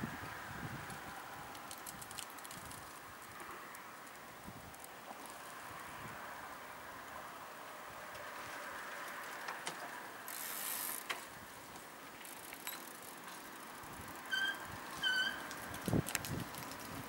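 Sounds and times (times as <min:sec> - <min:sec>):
bicycle freewheel ticking: 0:10.2 - 0:11.3, 0:12.1 - 0:17.0.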